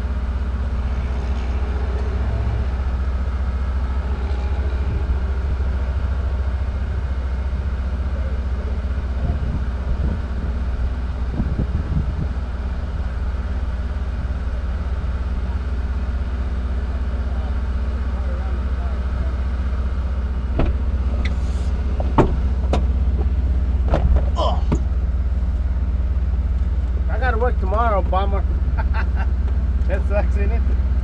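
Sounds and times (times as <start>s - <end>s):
engine idling hum: 0.0s - 31.0s
faint voices: 0.7s - 10.0s.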